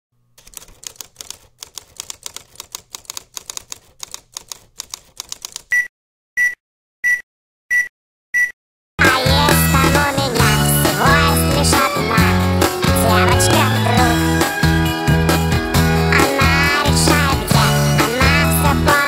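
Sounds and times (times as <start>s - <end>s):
typing clicks: 0.4s - 5.9s
short high beeps: 5.7s - 8.6s.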